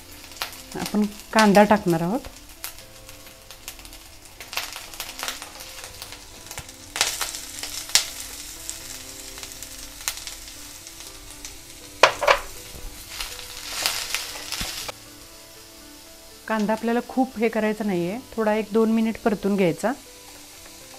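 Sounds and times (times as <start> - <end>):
food sizzling in hot oil: 0.0 - 20.9
spatula knocking against pan: 12.0 - 12.6.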